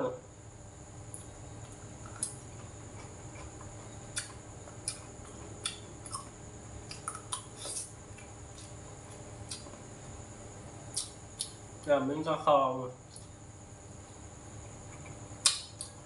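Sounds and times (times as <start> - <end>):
electric fan humming: 0.0 - 16.0
chewing smacks: 1.2 - 9.8.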